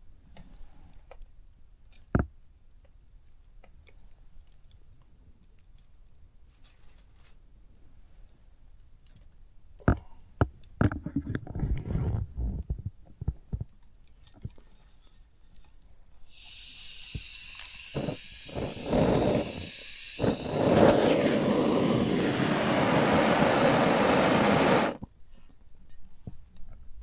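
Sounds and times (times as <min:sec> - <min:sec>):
steady hiss: 0:16.1 - 0:25.3.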